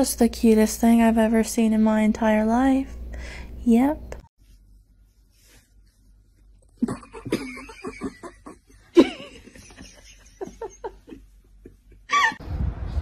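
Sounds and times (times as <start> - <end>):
person laughing: 6.8 - 12.4.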